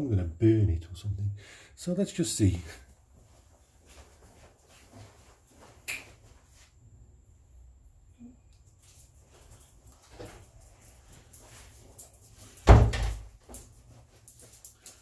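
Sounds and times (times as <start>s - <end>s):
door shutting with thud: 12.6s - 13.3s.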